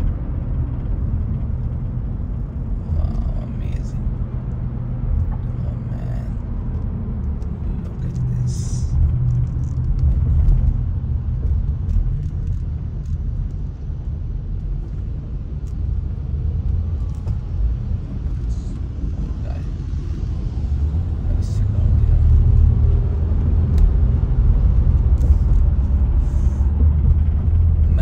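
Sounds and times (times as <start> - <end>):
car rumble from inside cabin: 0.0 - 28.0.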